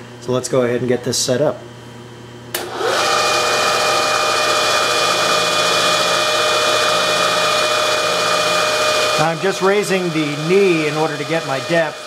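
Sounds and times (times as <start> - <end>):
milling machine spindle whining: 2.6 - 12.0.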